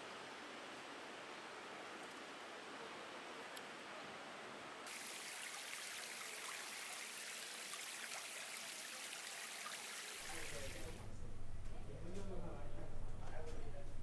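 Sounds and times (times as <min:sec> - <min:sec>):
water trickling down fountain: 0:04.9 - 0:11.0
low steady hum: 0:10.2 - 0:14.0.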